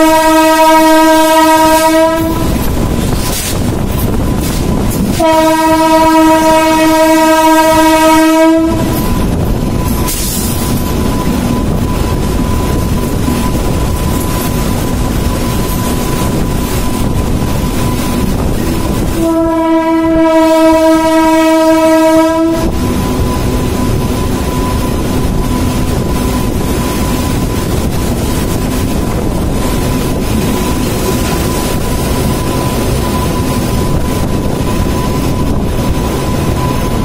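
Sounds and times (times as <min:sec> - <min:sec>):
train horn blast: 0:00.0 - 0:02.7, 0:05.1 - 0:09.1, 0:18.9 - 0:23.4
train wheels rumbling on rails: 0:00.0 - 0:37.0.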